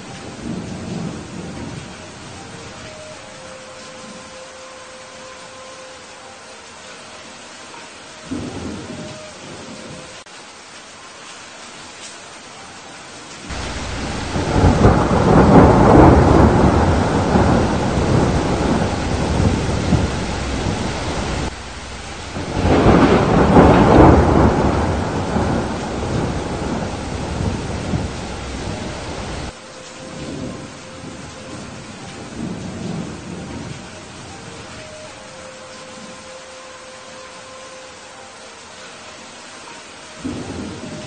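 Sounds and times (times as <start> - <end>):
heavy rain hissing: 0.0 - 41.0
thunder rolling: 13.5 - 29.6.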